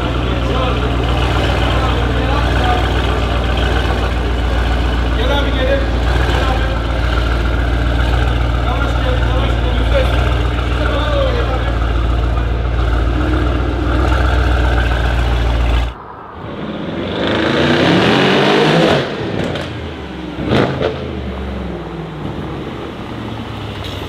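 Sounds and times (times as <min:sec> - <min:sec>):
car engine idling: 0:00.0 - 0:16.0
car engine accelerating: 0:00.0 - 0:23.8.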